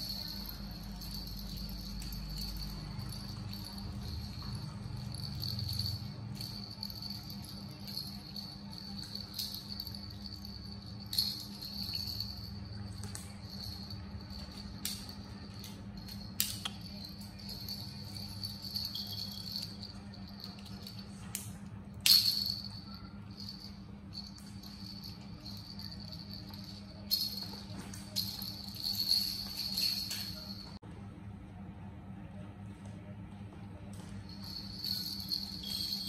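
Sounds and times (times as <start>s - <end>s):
plastic toy rattle shaking: 0.0s - 21.2s
low hum: 0.0s - 36.0s.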